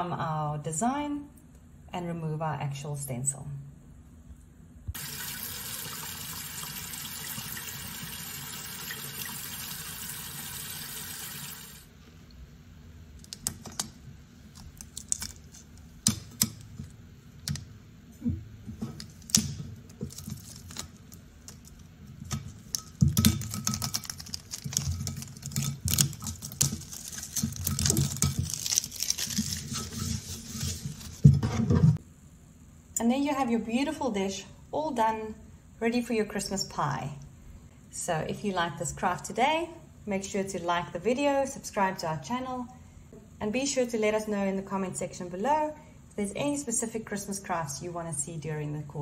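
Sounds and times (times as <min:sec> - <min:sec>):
tap water running: 0:05.0 - 0:11.9.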